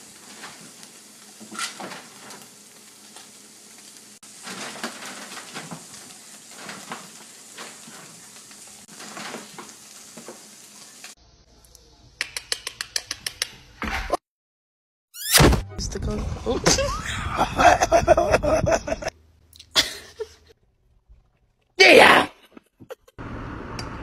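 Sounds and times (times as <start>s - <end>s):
steady crackling hiss: 0.0s - 12.0s.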